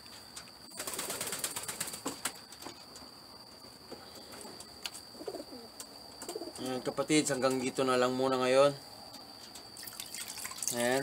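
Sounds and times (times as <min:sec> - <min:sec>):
water dripping: 0:09.8 - 0:11.0
water splashing in a bucket: 0:09.8 - 0:11.0.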